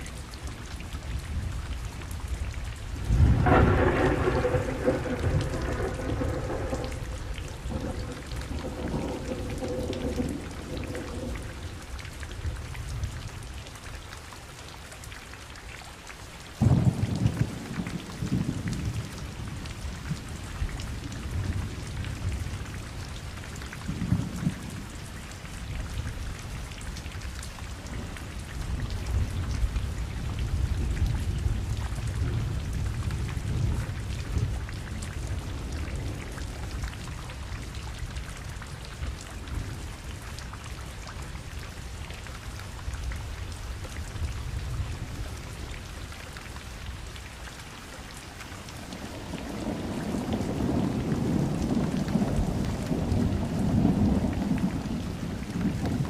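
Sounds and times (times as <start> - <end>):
heavy rain falling: 0.0 - 56.0
thunder: 3.0 - 11.9, 16.6 - 20.3, 49.2 - 56.0.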